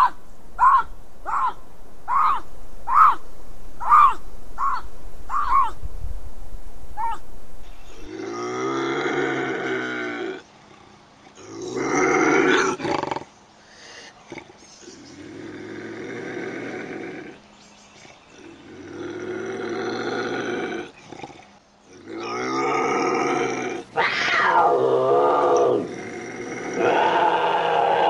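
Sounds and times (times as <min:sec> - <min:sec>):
bobcat yowling: 0:00.0 - 0:03.2, 0:03.8 - 0:05.8, 0:07.0 - 0:07.2, 0:24.0 - 0:25.9.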